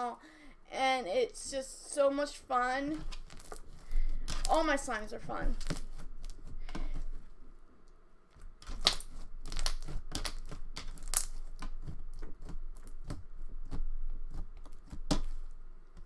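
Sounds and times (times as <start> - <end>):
slime squelching: 2.5 - 7.3, 8.3 - 15.5
slime clicking and popping: 8.6 - 13.2.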